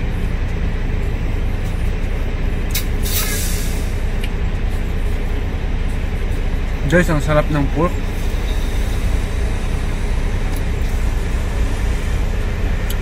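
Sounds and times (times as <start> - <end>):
truck engine idling: 0.0 - 13.0
short hiss: 2.7 - 4.0.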